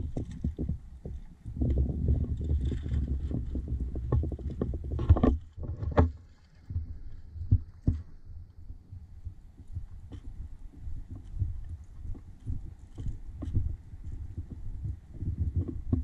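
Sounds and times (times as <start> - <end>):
rustling: 0.0 - 8.4
wind rumbling on microphone: 0.0 - 16.0.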